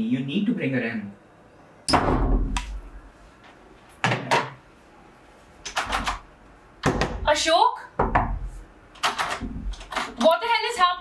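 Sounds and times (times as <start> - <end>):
knocks on a wooden door: 8.0 - 8.4.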